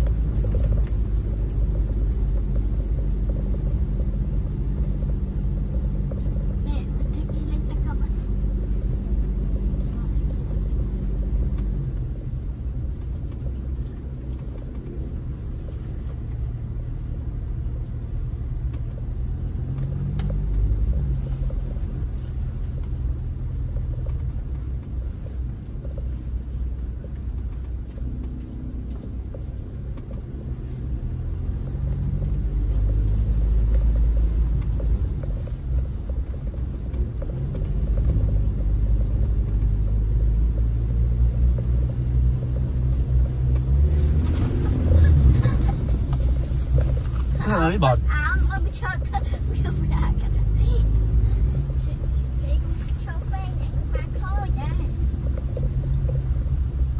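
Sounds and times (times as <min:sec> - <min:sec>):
engine and tyre rumble: 0:00.0 - 0:56.9.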